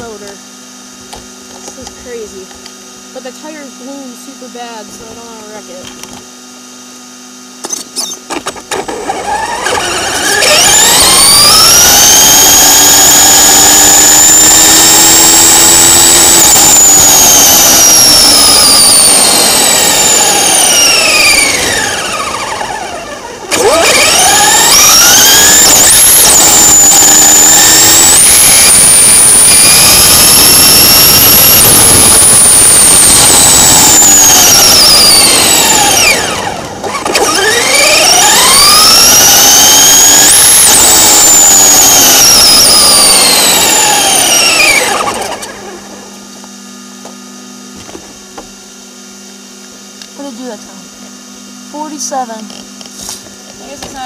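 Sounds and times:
rc truck motor whining: 7.6 - 46.5.

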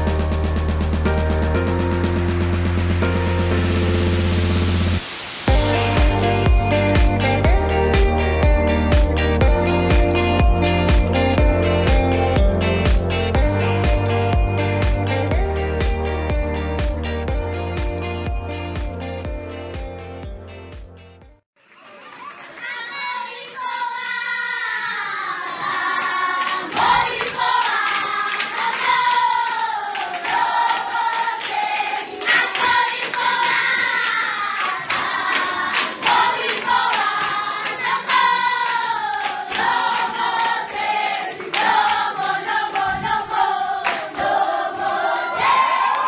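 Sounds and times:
children's choir singing: 22.6 - 45.9
hand claps: 25.4 - 42.9, 43.8 - 44.7.

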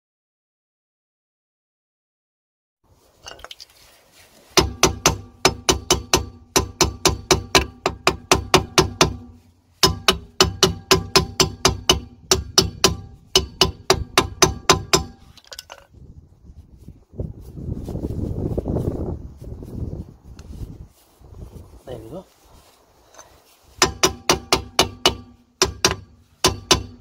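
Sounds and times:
mallet tapping metal brake drum: 4.6 - 15.2, 23.8 - 27.0.

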